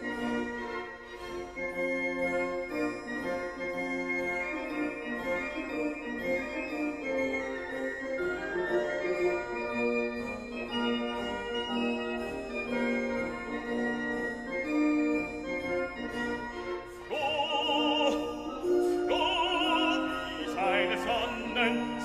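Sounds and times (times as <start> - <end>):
organ-like chords: 17.0 - 22.0
operatic singing voice: 17.1 - 22.0.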